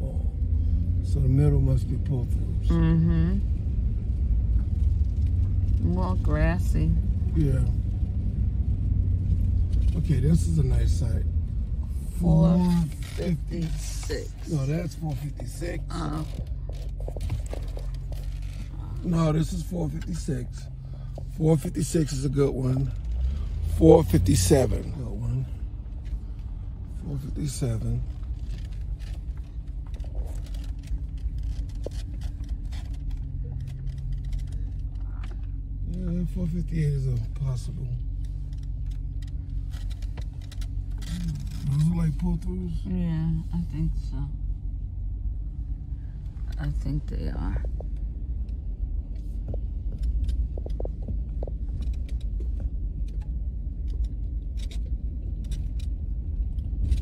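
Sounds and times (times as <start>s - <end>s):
vehicle engine rumbling: 0.0s - 57.0s
light clicks and rattles: 12.7s - 42.8s, 45.2s - 57.0s.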